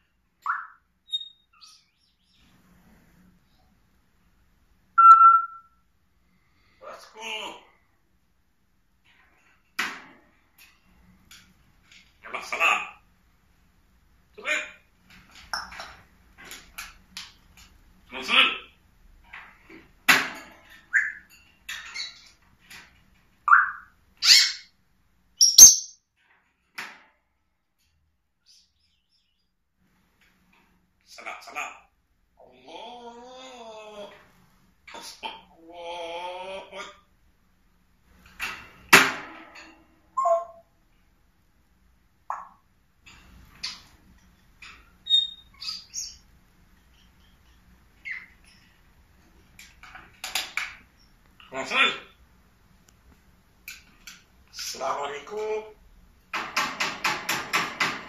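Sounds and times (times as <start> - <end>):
parrot whistle: 0.4 - 1.4, 5.0 - 5.8, 23.5 - 24.6
parrot chirps and clicks: 0.4 - 1.6, 5.0 - 5.7, 23.4 - 24.7, 25.4 - 26.0, 42.3 - 42.7
parrot whistles and squawks: 0.4 - 1.9, 5.0 - 5.8, 20.9 - 21.3, 23.5 - 24.7, 40.2 - 40.7, 45.0 - 46.2, 48.0 - 48.6.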